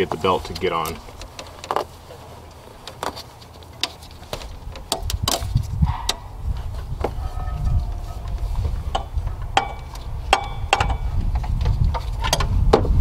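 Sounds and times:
tool clicking on engine parts: 0.0s - 6.2s, 8.3s - 12.9s
low rumble: 5.5s - 11.8s.

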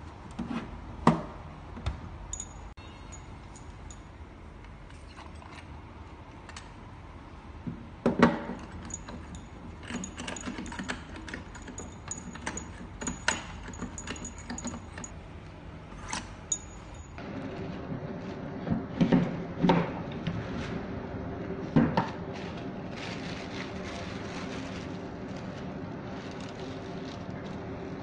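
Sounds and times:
machine parts clicking and rattling: 8.6s - 15.2s.

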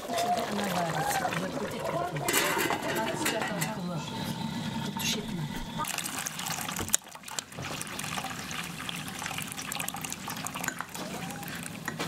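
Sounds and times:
liquid pouring and splashing into pot: 5.8s - 12.0s.

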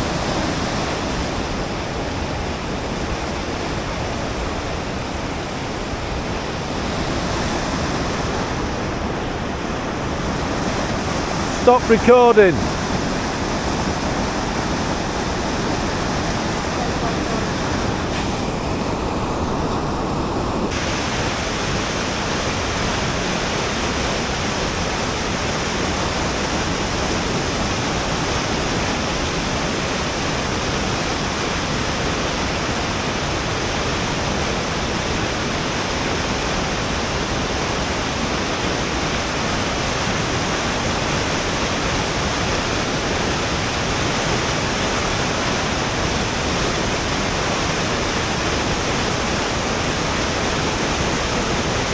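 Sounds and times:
river rapids roaring: 0.0s - 51.9s.

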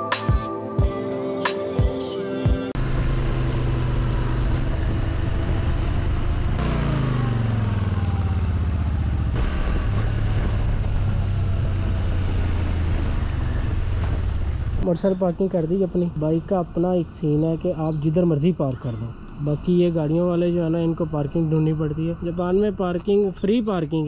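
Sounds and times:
motorcycle engine running: 2.8s - 14.8s
road noise: 2.8s - 24.0s.

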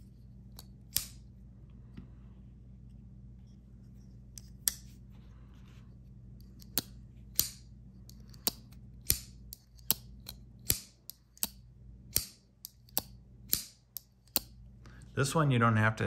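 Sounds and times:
folding knife blades clicking: 0.5s - 1.2s, 6.4s - 14.5s.

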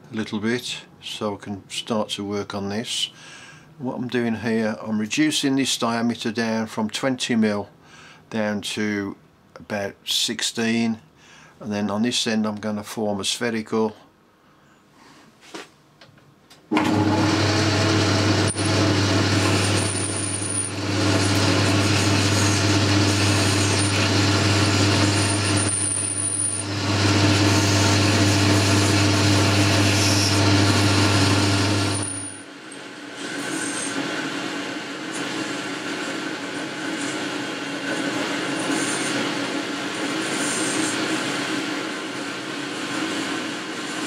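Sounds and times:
lathe running with low hum: 16.7s - 44.0s.

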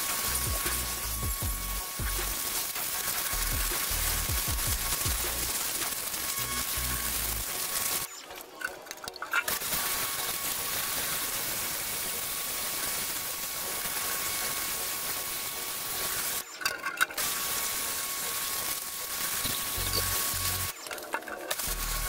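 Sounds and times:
pressure washer whine: 0.0s - 22.0s
water jet hissing on metal: 0.0s - 22.0s.

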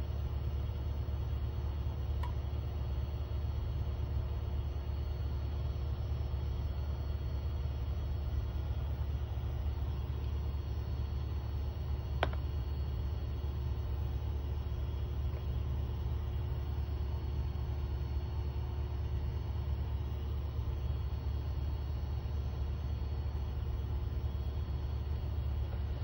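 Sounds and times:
laminator humming: 8.3s - 21.8s.

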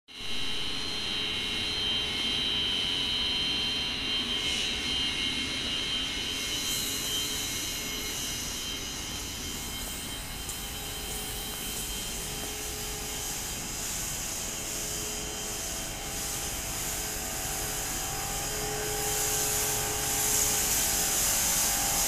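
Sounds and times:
industrial machinery hum: 0.2s - 22.0s
high whining tones: 0.3s - 22.0s
bright hiss: 6.1s - 22.0s.

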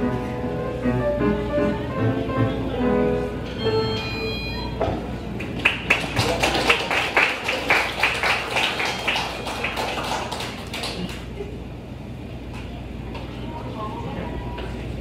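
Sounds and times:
audience clapping: 5.4s - 11.4s.

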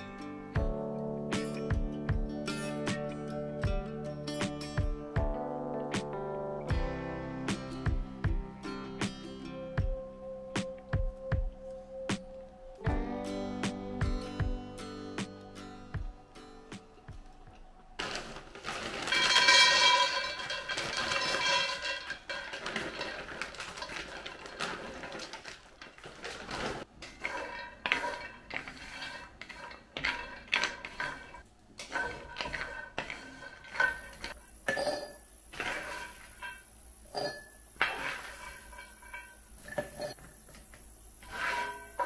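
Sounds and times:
almonds rattling into skillet: 18.0s - 42.0s
nuts scraping in pan: 18.0s - 42.0s.

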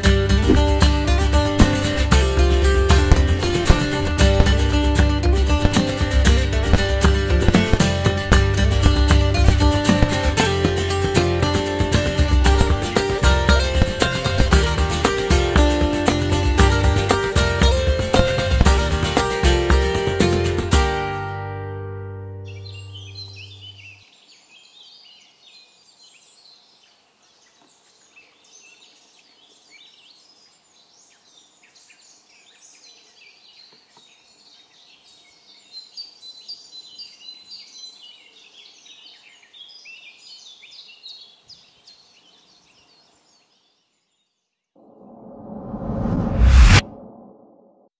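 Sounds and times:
rising whoosh: 1.4s - 4.5s, 44.8s - 47.9s
small birds chirping: 22.5s - 44.6s.

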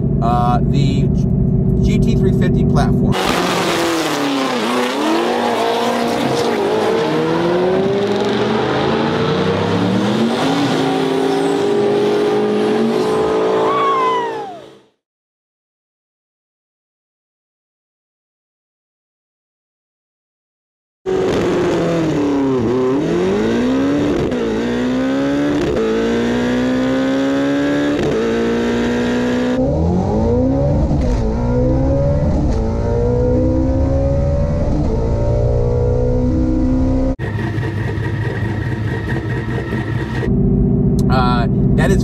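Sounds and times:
car engine accelerating hard: 0.0s - 14.8s, 21.1s - 42.0s.

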